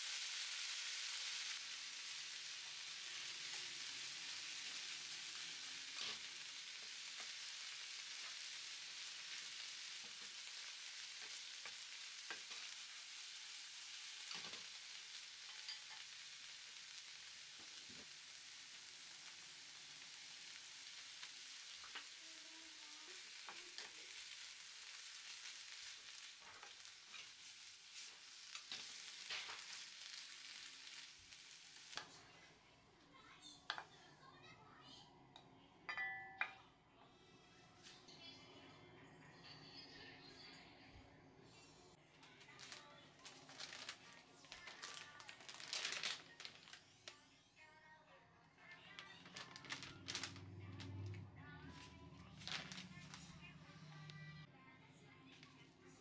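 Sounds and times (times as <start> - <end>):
vegetables sizzling in a frying pan: 0.0 - 34.5, 42.3 - 46.8, 48.9 - 54.2.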